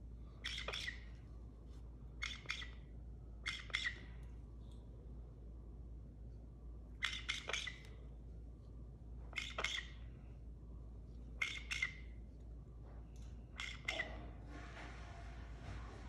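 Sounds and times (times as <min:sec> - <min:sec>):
parrot squawking: 0:00.4 - 0:01.1, 0:02.2 - 0:02.8, 0:03.4 - 0:04.1, 0:07.0 - 0:07.9, 0:09.3 - 0:10.0, 0:11.4 - 0:12.1, 0:13.6 - 0:14.2.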